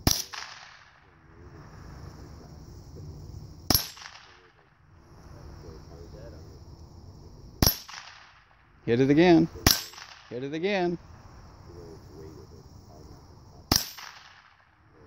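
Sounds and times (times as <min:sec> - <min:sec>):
gunshots: 0:00.0 - 0:01.2, 0:03.7 - 0:04.6, 0:07.6 - 0:08.5, 0:09.2 - 0:10.7, 0:13.7 - 0:14.8.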